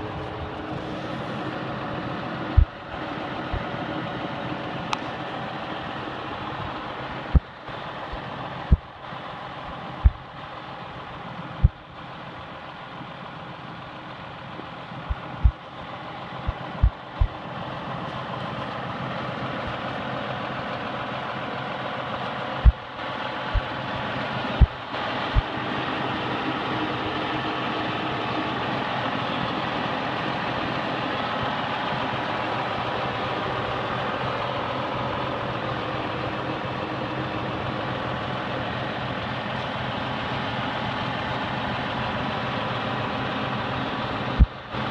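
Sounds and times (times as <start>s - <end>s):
tractor diesel engine idling: 0.0s - 44.9s
short sharp low thumps: 2.6s - 2.8s, 10.0s - 10.2s, 15.1s - 15.6s.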